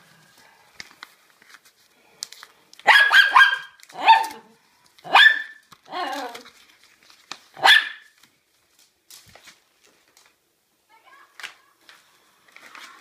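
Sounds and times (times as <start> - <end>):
small dog barking: 2.8 - 4.4, 5.1 - 5.6, 7.6 - 8.1.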